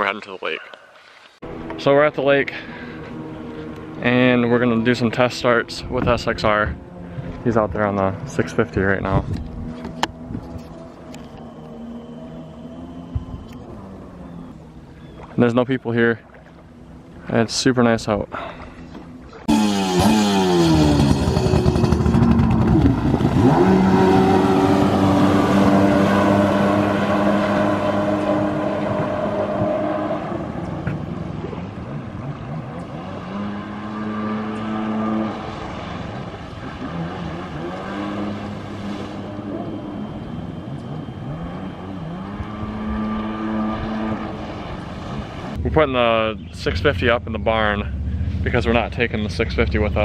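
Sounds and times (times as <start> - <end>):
jet ski engine revving: 1.4 - 15.4, 18.4 - 46.1.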